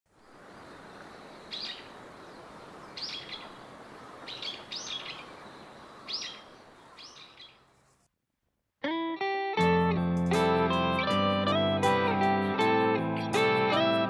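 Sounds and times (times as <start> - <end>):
river water rushing: 0.2 - 6.9
small bird chirping: 0.2 - 7.9.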